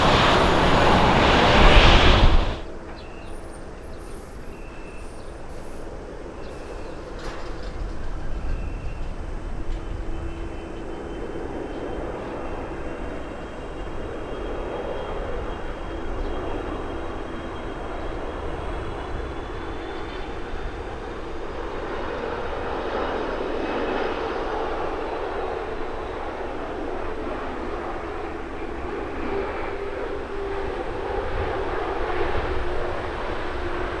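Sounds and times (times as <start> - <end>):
high fan whine: 0.0 - 3.0
jet engines rumbling: 0.0 - 34.0.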